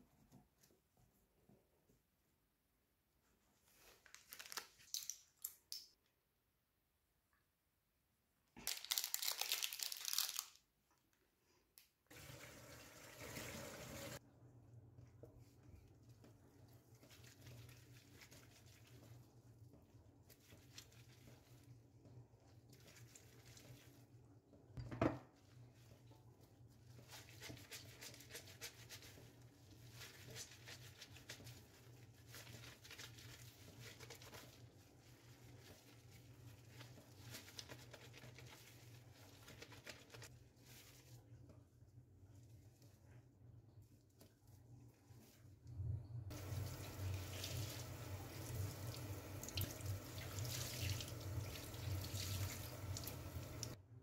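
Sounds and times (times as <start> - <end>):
soapy cloth squishing: 15.0 - 45.7, 46.3 - 53.8.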